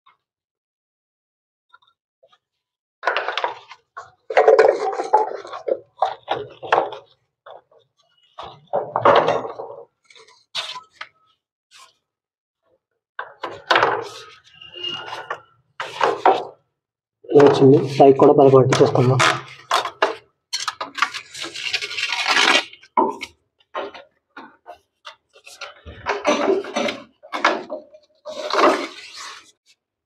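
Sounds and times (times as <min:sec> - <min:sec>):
plastic pipes knocking and scraping: 0:03.0 - 0:11.0, 0:15.1 - 0:16.6, 0:17.3 - 0:29.4.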